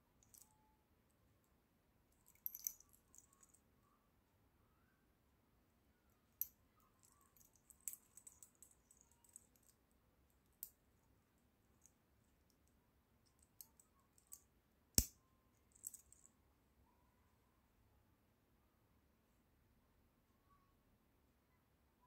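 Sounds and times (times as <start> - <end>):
metal watch bracelet clicking: 2.4 - 3.5.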